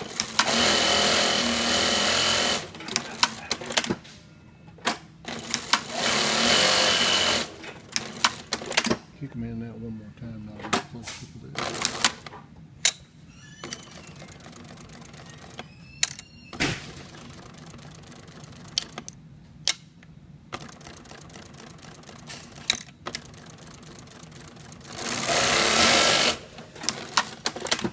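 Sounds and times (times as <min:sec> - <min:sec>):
sewing machine humming: 0:00.0 - 0:03.9, 0:05.2 - 0:09.0, 0:11.5 - 0:12.3, 0:13.6 - 0:15.8, 0:16.8 - 0:19.0, 0:20.5 - 0:27.9
sewing machine stitching burst: 0:00.0 - 0:04.0, 0:05.3 - 0:09.0, 0:16.5 - 0:18.9, 0:20.5 - 0:27.9
sharp lever clicks: 0:07.6 - 0:09.0, 0:18.7 - 0:20.9.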